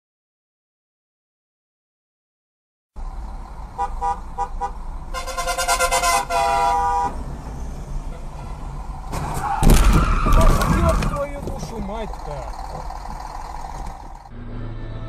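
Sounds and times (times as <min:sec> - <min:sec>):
low hum of car: 0:03.0 - 0:15.0
car horns honking: 0:03.7 - 0:07.4, 0:08.0 - 0:15.0
loud thump and rumble: 0:09.1 - 0:11.8.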